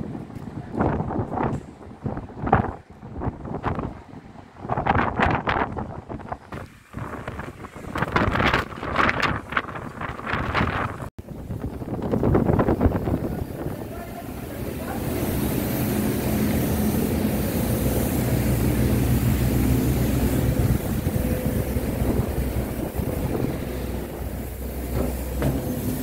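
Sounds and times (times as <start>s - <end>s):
wind buffeting microphone: 0.0s - 26.0s
low machinery hum: 11.0s - 26.0s.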